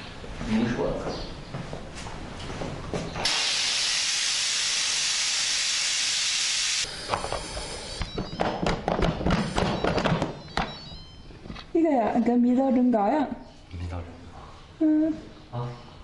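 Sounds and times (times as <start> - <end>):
pressure cooker steam hissing: 3.2 - 8.1.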